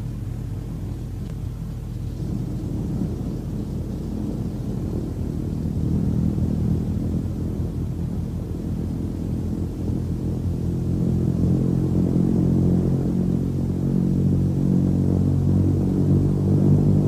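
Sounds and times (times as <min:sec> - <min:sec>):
propeller aircraft engine rumble: 0:00.0 - 0:17.0.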